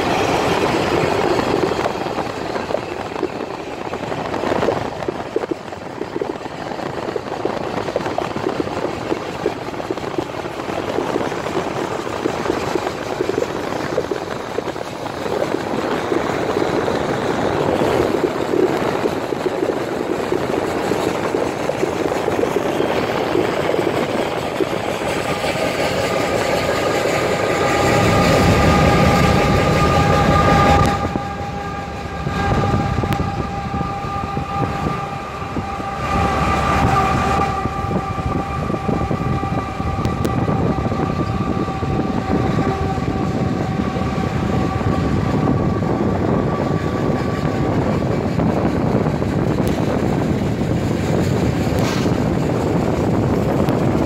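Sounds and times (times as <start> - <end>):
train rumbling: 0.0 - 54.0
train horn: 22.3 - 53.8.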